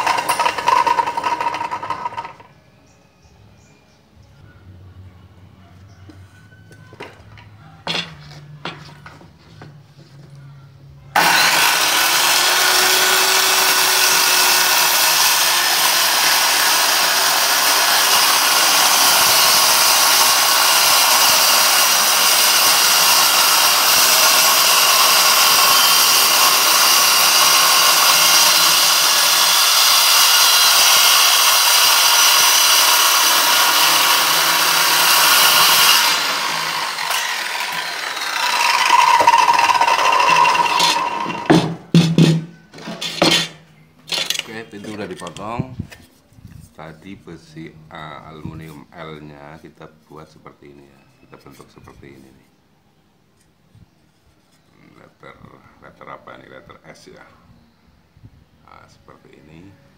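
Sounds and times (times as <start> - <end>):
circular saw cutting plywood: 0.0 - 2.5, 11.2 - 45.5.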